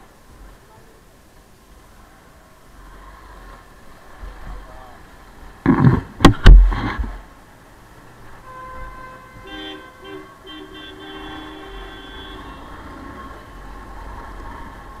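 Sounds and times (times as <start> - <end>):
loud thumps: 5.6 - 7.2
vehicle horns honking: 8.4 - 12.9.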